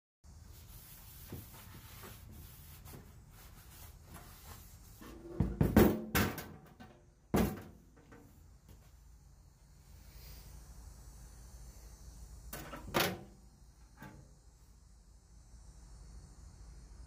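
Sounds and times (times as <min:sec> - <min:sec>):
objects clunking in workshop: 0:05.0 - 0:08.3, 0:12.5 - 0:13.3.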